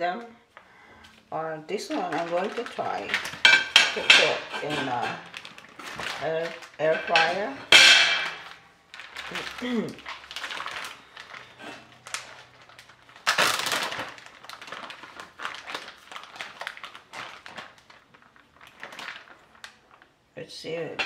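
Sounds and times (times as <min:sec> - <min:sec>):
plastic bag crinkling: 0:01.0 - 0:21.0.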